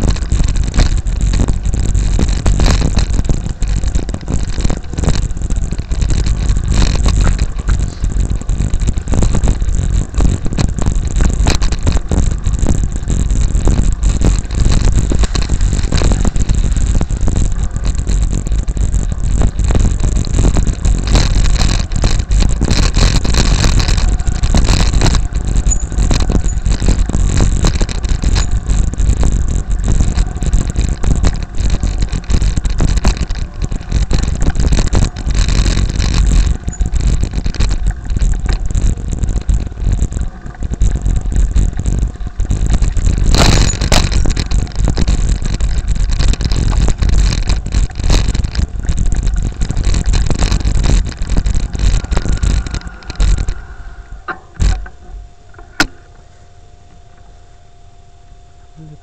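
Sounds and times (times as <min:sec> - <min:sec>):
wind rumble on microphone: 0:00.0 - 0:59.0
faint steady tone: 0:48.7 - 0:59.0.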